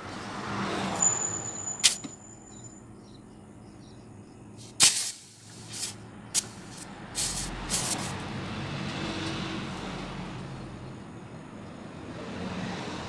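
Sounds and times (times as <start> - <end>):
thin high whistle: 1.0 - 2.8
hissing bursts from refrigerator piping: 4.6 - 8.2.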